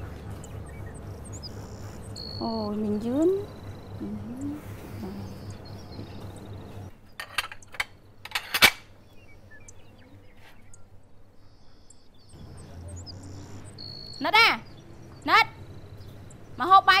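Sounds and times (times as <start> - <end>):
faint low hum: 0.0 - 17.0
dishes and cutlery clinking: 7.2 - 8.8.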